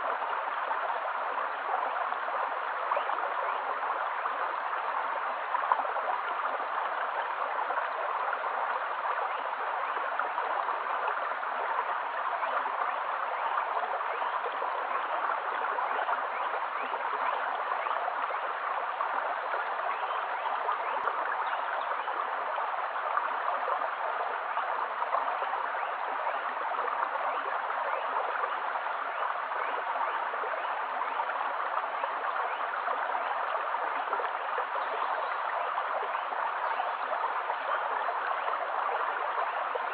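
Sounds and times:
stream flowing over stones: 0.0s - 39.9s.

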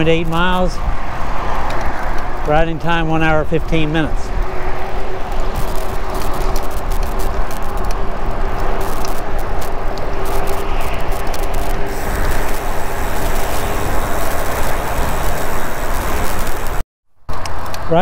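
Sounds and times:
wind buffeting microphone: 0.0s - 16.8s
bike tyre noise on road: 0.0s - 18.0s
small clicks: 5.6s - 12.6s.

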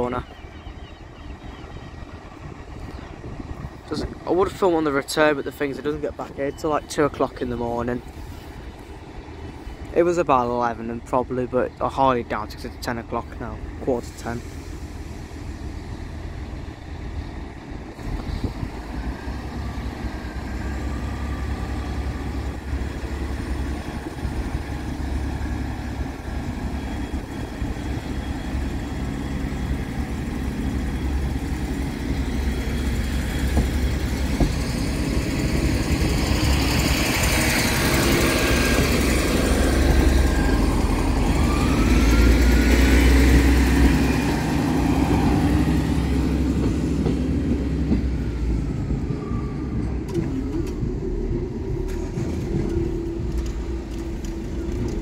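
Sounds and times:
train diesel engine running: 0.0s - 55.0s
train wheel noise: 1.2s - 55.0s.

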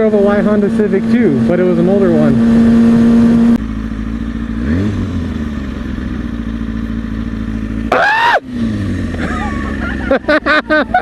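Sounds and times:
motorcycle engine idling: 0.0s - 11.0s
high-pitched shout: 7.9s - 8.4s.

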